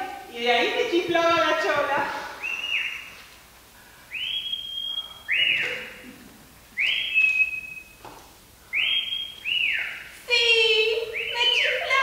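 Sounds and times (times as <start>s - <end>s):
person wolf whistling: 2.4s - 3.1s, 4.1s - 6.0s, 6.8s - 8.0s, 8.7s - 10.0s.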